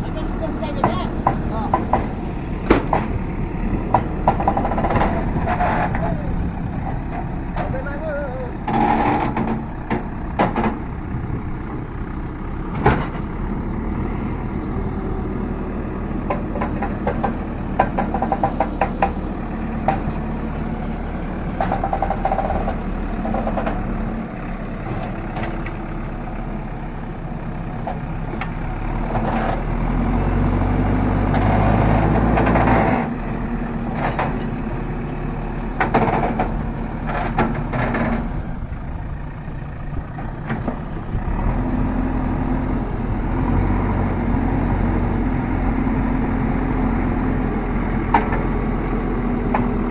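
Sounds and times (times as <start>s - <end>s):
diesel engine under load: 0.0s - 49.9s
metallic knocks and clanks: 0.7s - 6.1s, 8.6s - 10.9s, 16.2s - 19.2s.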